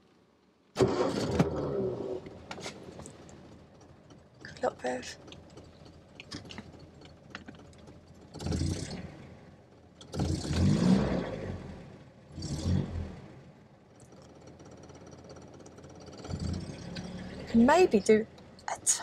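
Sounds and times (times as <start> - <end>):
engine cranking by starter: 0.8 - 18.6.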